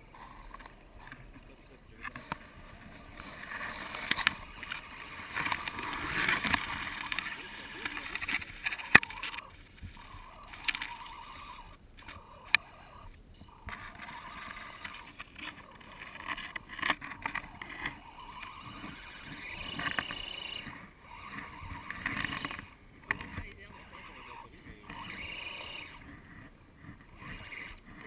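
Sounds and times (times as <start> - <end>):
wheels churning and splashing water: 2.6 - 11.7.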